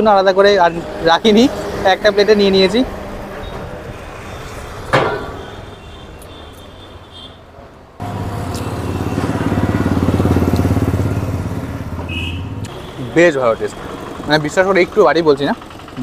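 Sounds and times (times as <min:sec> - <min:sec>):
background traffic: 0:00.0 - 0:16.0
vehicle engine idling: 0:08.0 - 0:16.0.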